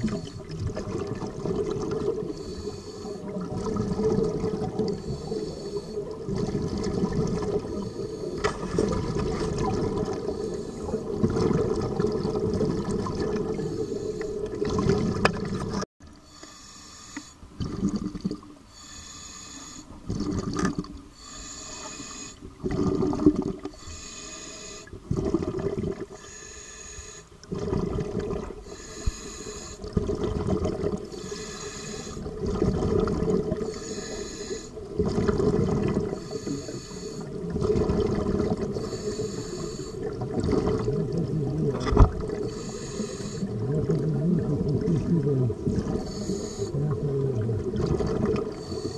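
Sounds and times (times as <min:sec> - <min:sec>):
bubbling exhalations: 0:00.0 - 0:02.5, 0:03.2 - 0:05.4, 0:06.1 - 0:15.8, 0:17.6 - 0:18.4, 0:20.1 - 0:20.9, 0:22.6 - 0:23.7, 0:25.1 - 0:26.2, 0:27.4 - 0:28.6, 0:29.8 - 0:33.9, 0:34.9 - 0:36.3, 0:37.3 - 0:39.4, 0:40.0 - 0:48.9
regulator hissing inhalations: 0:02.3 - 0:03.3, 0:05.0 - 0:06.1, 0:10.3 - 0:11.1, 0:13.6 - 0:14.4, 0:16.2 - 0:17.4, 0:18.7 - 0:20.0, 0:21.2 - 0:22.4, 0:23.7 - 0:24.9, 0:26.2 - 0:27.3, 0:28.6 - 0:29.8, 0:31.1 - 0:32.3, 0:33.7 - 0:34.8, 0:36.2 - 0:37.4, 0:38.7 - 0:40.1, 0:42.4 - 0:43.6, 0:46.0 - 0:46.9, 0:48.6 - 0:48.9.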